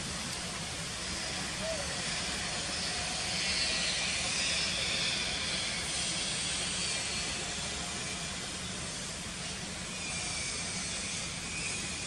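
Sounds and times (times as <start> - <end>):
steady outdoor hiss: 0.0 - 12.0.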